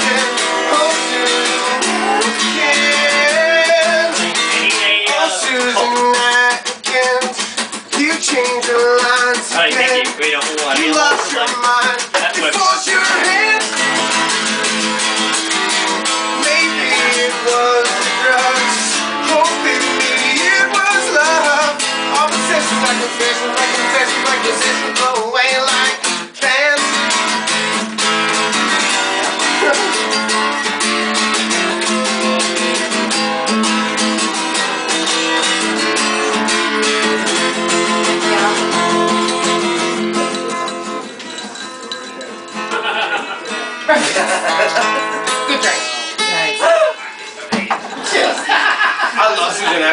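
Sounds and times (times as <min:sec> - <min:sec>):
young man singing: 0:00.0 - 0:14.6, 0:16.0 - 0:27.6, 0:31.3 - 0:42.2
acoustic guitar strumming: 0:00.0 - 0:49.9.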